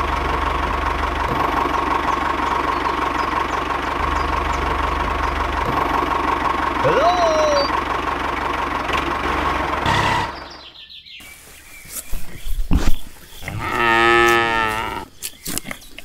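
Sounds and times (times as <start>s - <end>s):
small engine running: 0.0s - 10.8s
cow mooing: 13.5s - 15.1s
clicks and rustles: 14.3s - 16.0s.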